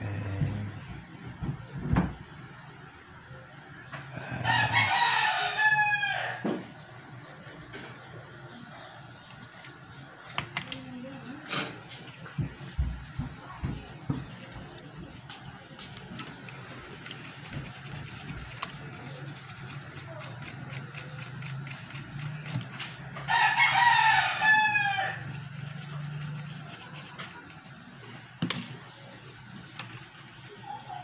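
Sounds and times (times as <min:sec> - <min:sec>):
rooster crowing: 0:04.2 - 0:06.6, 0:23.2 - 0:25.4.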